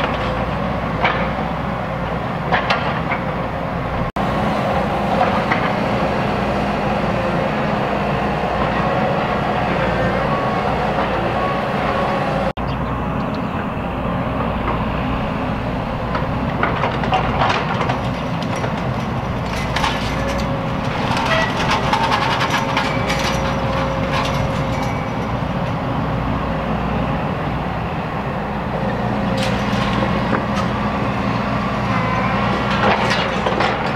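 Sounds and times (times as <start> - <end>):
excavator diesel engine running: 0.0 - 33.9
debris clattering and crashing: 16.1 - 25.8, 29.3 - 30.8, 32.5 - 33.9.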